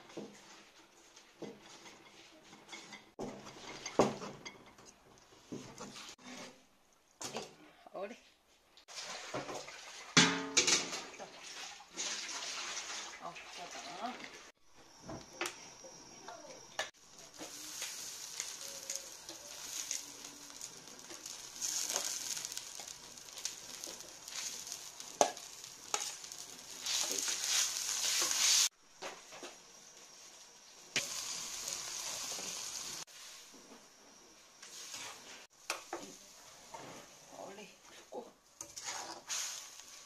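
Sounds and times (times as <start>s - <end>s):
wok sizzling and hissing: 8.9s - 40.0s.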